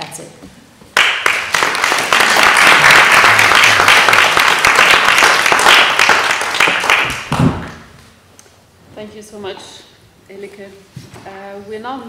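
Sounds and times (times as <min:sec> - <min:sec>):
audience applauding: 0:01.0 - 0:07.9.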